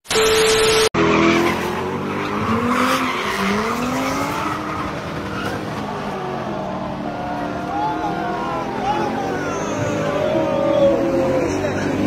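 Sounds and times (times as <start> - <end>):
car engine revving: 1.0 - 12.0.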